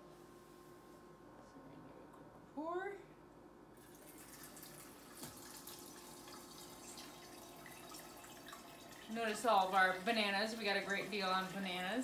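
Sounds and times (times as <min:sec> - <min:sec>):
broth trickling and splashing: 0:03.8 - 0:12.0.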